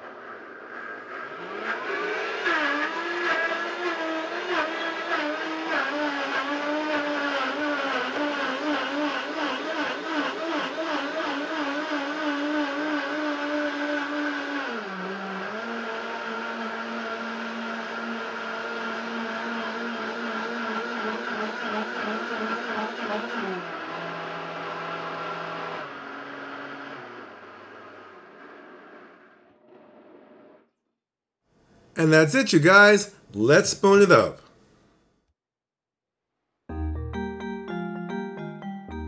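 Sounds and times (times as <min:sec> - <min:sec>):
blender motor whine: 0:00.0 - 0:30.0.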